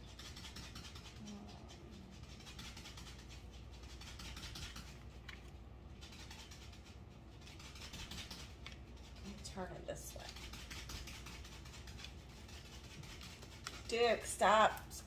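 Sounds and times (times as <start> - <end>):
dog scratching itself: 0.0 - 15.0.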